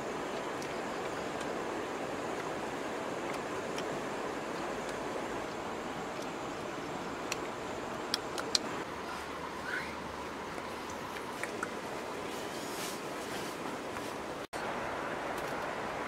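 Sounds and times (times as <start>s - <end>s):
rushing hiss of outdoor noise: 0.0s - 16.0s
sharp clicks: 8.1s - 8.7s.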